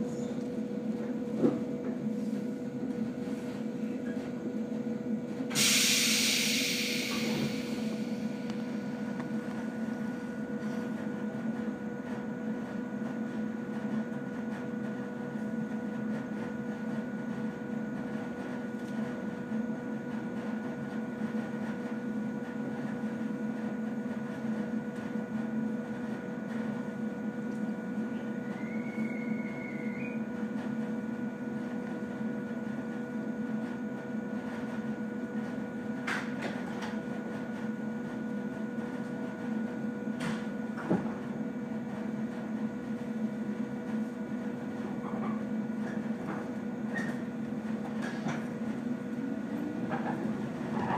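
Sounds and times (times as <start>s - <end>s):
train equipment humming: 0.0s - 50.9s
rising whistle-like tone: 28.4s - 30.2s.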